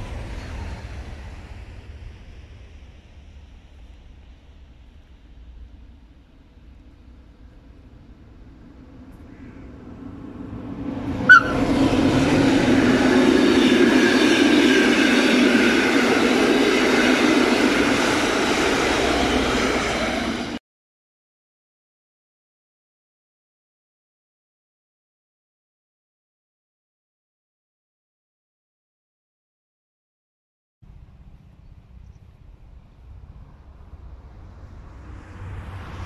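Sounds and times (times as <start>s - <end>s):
electric train rumble: 0.0s - 20.6s, 30.8s - 36.0s
sharp high note: 11.3s - 11.7s.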